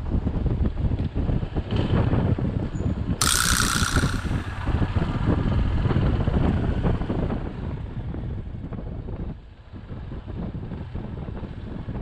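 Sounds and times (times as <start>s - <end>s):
wind buffeting microphone: 0.0s - 12.0s
motorcycle rumble: 3.2s - 7.7s.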